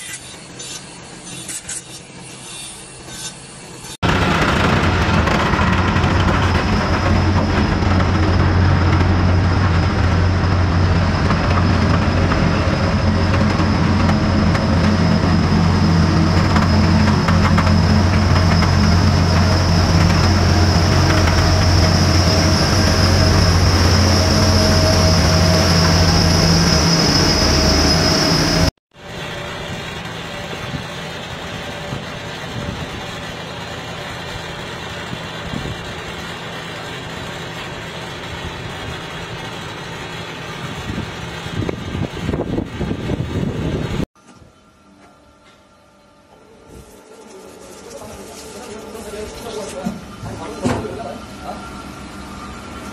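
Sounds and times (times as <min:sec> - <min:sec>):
high steady whine: 0:02.8 - 0:39.6
quieter tractor engine: 0:03.6 - 0:52.9
heavy diesel engine running: 0:04.0 - 0:44.0.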